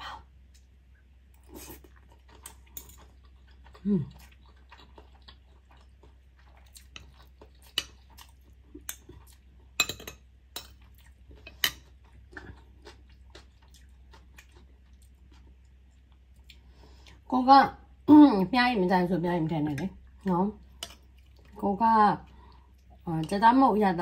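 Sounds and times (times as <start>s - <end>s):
faint low hum: 0.0s - 24.0s
cutlery clinking on a plate: 9.8s - 10.8s.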